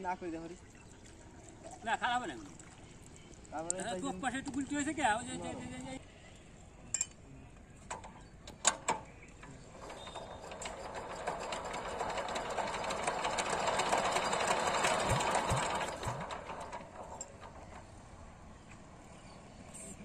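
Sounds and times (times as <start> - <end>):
crank clicking: 7.9 - 18.0
diesel engine clattering: 9.3 - 19.4.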